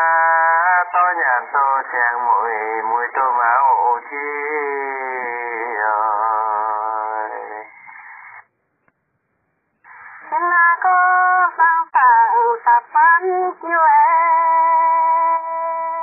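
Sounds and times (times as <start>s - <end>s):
person singing slow melody: 0.0s - 7.8s, 9.9s - 16.0s.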